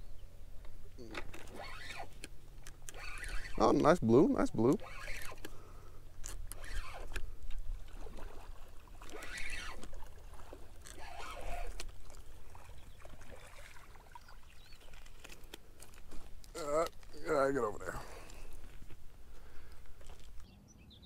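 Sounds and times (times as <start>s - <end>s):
reel clicks: 0.6s - 8.3s, 9.0s - 12.2s
spinning reel cranking: 1.3s - 2.2s, 2.8s - 3.8s, 4.6s - 5.5s, 6.2s - 7.2s, 9.1s - 9.9s, 10.8s - 11.8s
fish splashing in water: 6.6s - 15.5s.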